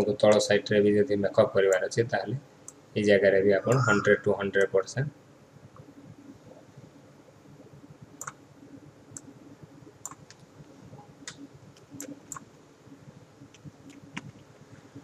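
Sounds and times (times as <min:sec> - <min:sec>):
faint background hum: 0:00.0 - 0:15.0
computer mouse clicking: 0:08.2 - 0:08.4, 0:10.0 - 0:10.5, 0:11.2 - 0:12.5, 0:13.4 - 0:14.5.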